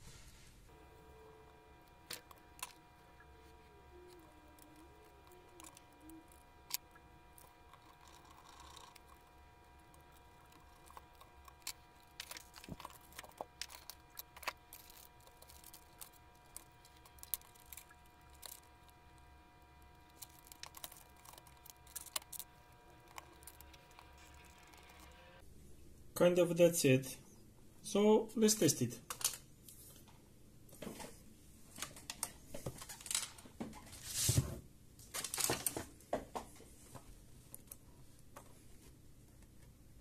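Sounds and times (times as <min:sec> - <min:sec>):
faint steady hum: 0:00.0 - 0:40.0
plastic parts clicking: 0:09.9 - 0:25.2, 0:29.1 - 0:29.4.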